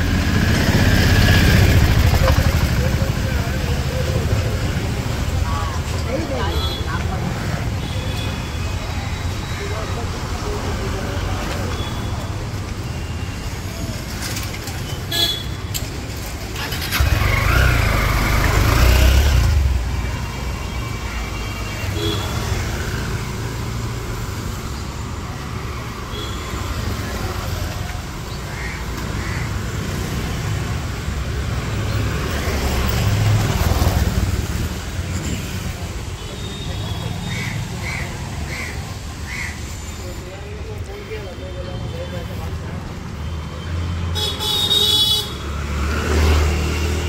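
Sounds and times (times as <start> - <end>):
motorbikes riding past: 0.0 - 7.8, 16.2 - 20.6, 28.9 - 35.9, 45.4 - 47.0
steady traffic rumble: 0.0 - 47.0.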